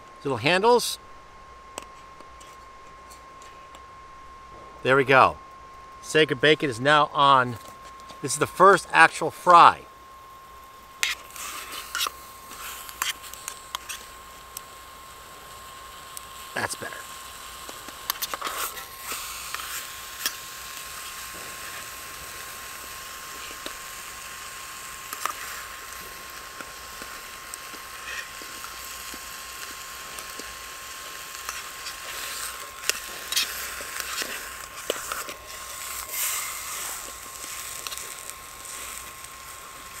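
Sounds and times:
stove fan whine: 0:00.0 - 0:40.0
bacon sizzling in a pan: 0:10.4 - 0:40.0.

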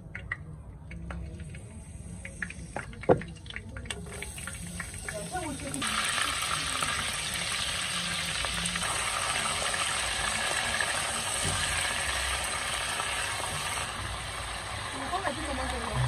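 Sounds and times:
onions sizzling in oil: 0:04.2 - 0:16.0.

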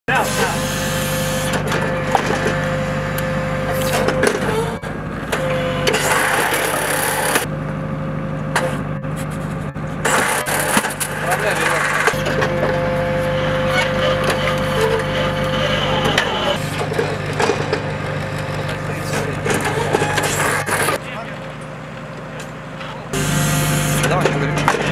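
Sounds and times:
engine running with whine: 0:00.1 - 0:24.9
metallic clanks and knocks: 0:16.0 - 0:20.9.

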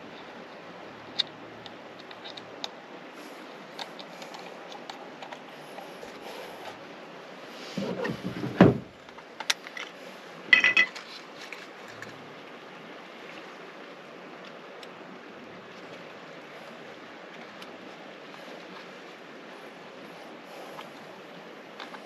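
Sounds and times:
dull knocks on plastic: 0:08.1 - 0:08.9.

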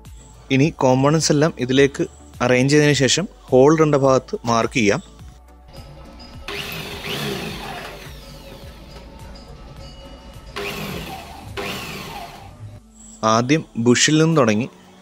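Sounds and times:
background music: 0:00.0 - 0:15.0
electric drill boring through steel: 0:06.1 - 0:12.7.

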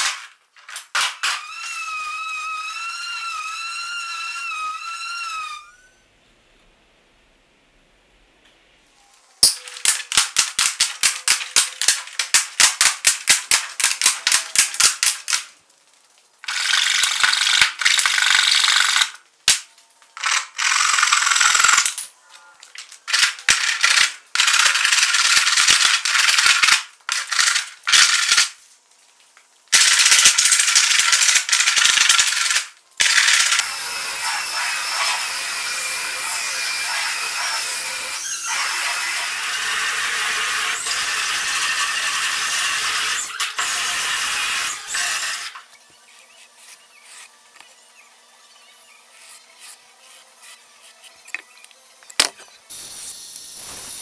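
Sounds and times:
handheld sander on wood: 0:33.3 - 0:47.9, 0:48.9 - 0:51.5
power tool hiss: 0:52.7 - 0:54.0.

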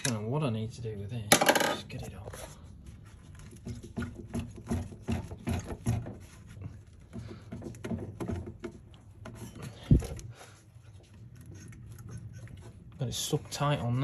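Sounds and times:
rubber hose rubbing: 0:02.4 - 0:14.0.

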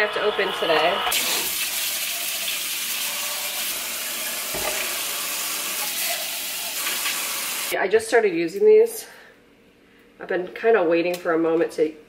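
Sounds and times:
faucet water running: 0:00.1 - 0:07.8.

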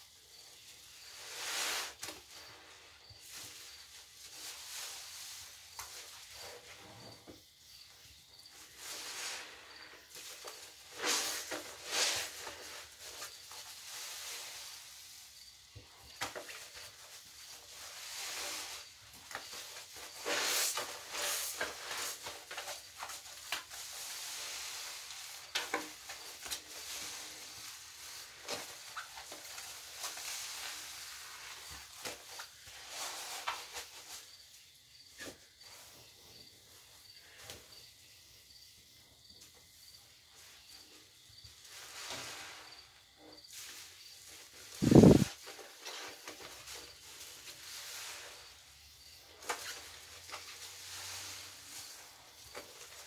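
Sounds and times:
wet sponges squelching: 0:16.2 - 0:34.2.

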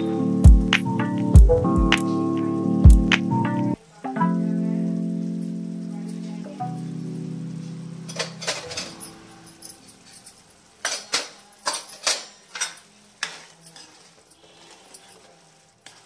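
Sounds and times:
background music: 0:00.0 - 0:10.4
spoon clinking against pots: 0:08.1 - 0:16.0.

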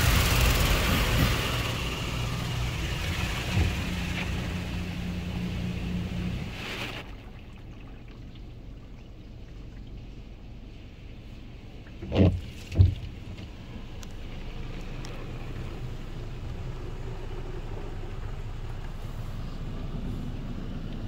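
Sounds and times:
car wash spray and machine noise: 0:00.0 - 0:07.1.

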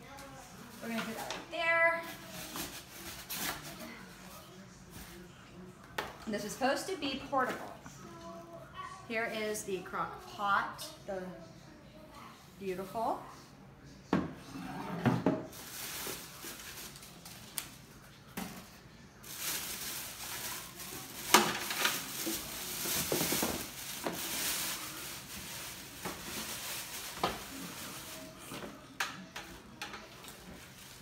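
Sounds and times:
packaging crinkling and rustling: 0:15.5 - 0:17.8, 0:19.2 - 0:28.5.

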